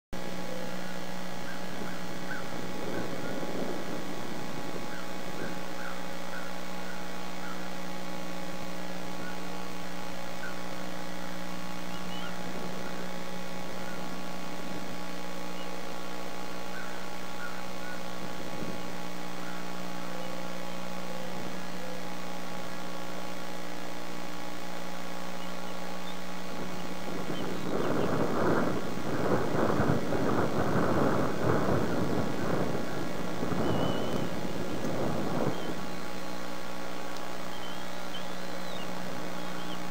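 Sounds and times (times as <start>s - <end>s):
electrical mains hum: 0.2s - 39.9s
faint chirps: 10.4s - 14.2s, 35.3s - 39.9s.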